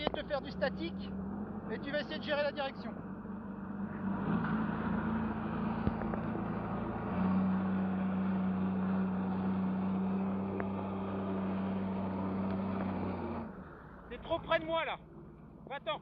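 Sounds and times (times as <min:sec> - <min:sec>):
jet ski engine running: 0:04.7 - 0:15.8.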